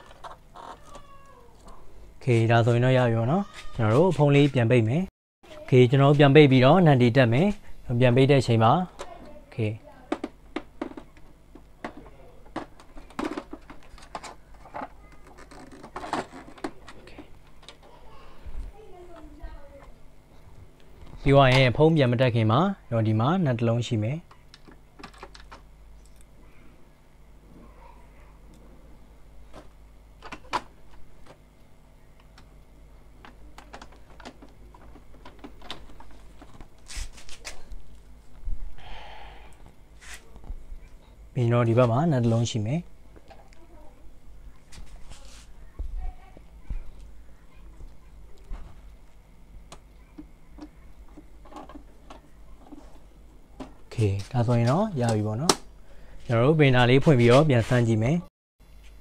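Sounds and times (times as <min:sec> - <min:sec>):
low steady hum: 0:04.4 - 0:59.0
plastic clicks and knocks: 0:10.1 - 0:17.9.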